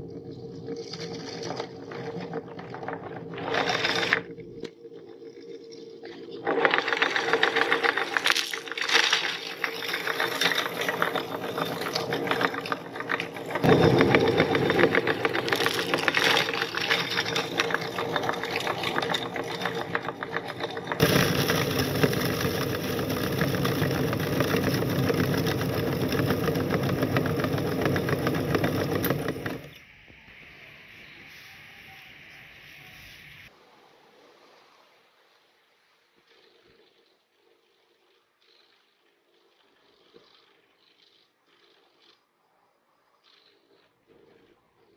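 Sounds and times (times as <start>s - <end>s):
meat grinder crunching candy: 1.1s - 4.3s, 6.4s - 29.8s.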